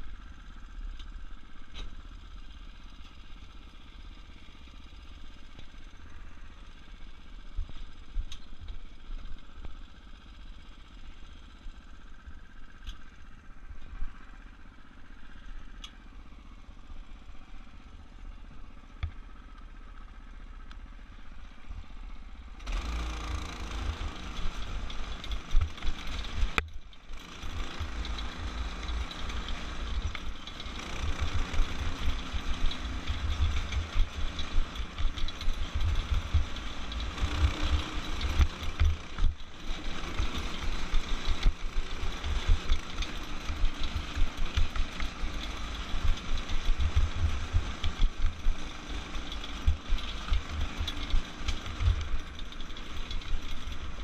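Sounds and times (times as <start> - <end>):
go-kart engine running hard: 0.0 - 54.0.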